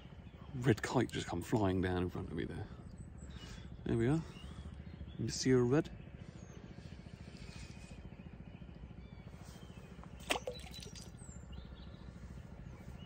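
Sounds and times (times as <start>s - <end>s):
steady low rumble: 0.0s - 13.0s
faint bird chirps: 2.4s - 13.0s.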